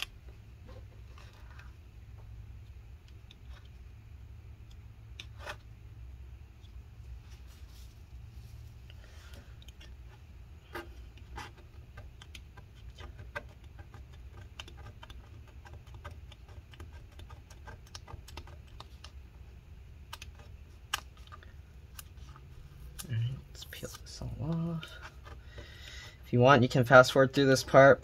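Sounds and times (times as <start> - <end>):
plastic scraper scratching metal: 10.6 - 19.0.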